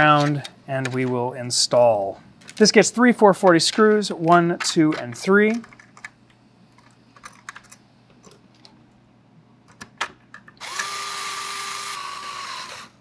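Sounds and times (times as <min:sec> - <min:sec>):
electric screwdriver whining: 0:10.6 - 0:13.0.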